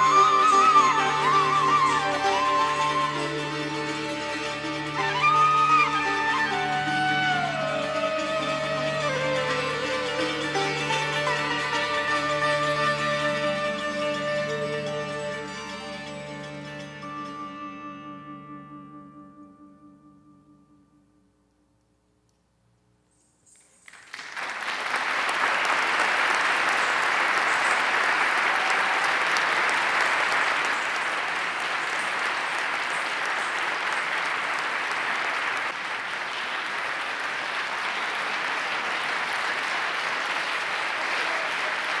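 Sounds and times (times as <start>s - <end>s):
audience applauding: 0.0s - 14.2s, 23.8s - 42.0s.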